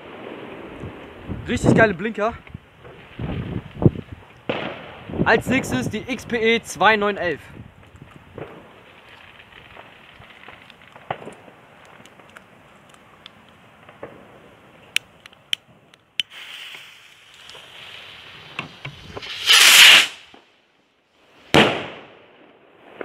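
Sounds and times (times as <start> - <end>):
loud firework bang: 4.5 - 5.0, 19.0 - 20.4, 21.5 - 22.1
rocket fuse hissing: 16.2 - 20.5
rocket launch whoosh: 16.3 - 20.4.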